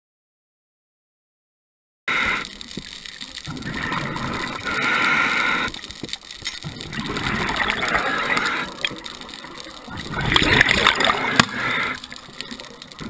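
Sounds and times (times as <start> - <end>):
scuba regulator hissing inhalations: 2.1 - 2.6, 3.7 - 6.0, 7.5 - 9.0, 9.9 - 12.7.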